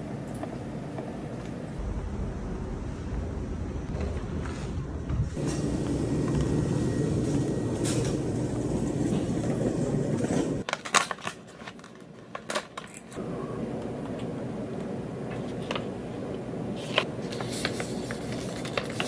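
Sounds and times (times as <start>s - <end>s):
indoor background rumble: 1.8s - 10.6s
crinkles and clicks of handling: 10.2s - 13.2s, 16.8s - 19.0s.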